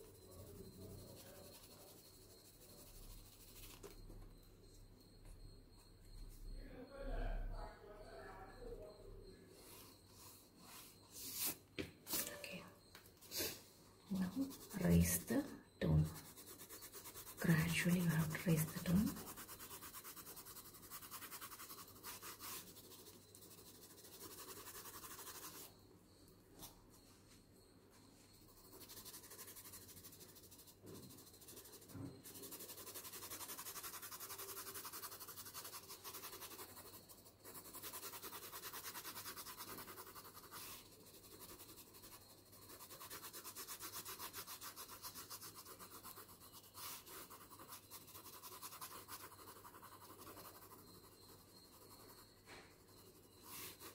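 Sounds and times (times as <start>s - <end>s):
pencil shading on paper: 0.0s - 4.0s, 14.1s - 25.8s, 28.2s - 53.9s.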